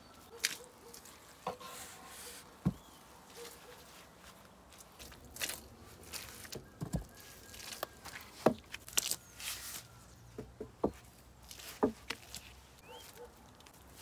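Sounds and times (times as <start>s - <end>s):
footsteps on dry leaves: 0.3s - 10.3s, 11.0s - 14.0s
wooden log knocks and thuds: 2.6s - 2.8s, 6.6s - 7.2s, 8.4s - 8.8s, 10.4s - 11.1s, 11.7s - 12.2s.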